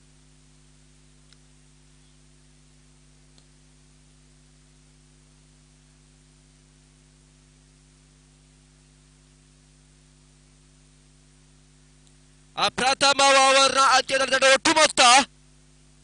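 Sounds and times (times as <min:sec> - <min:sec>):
faint click: 0:01.2 - 0:01.5, 0:03.3 - 0:03.6, 0:12.0 - 0:12.2.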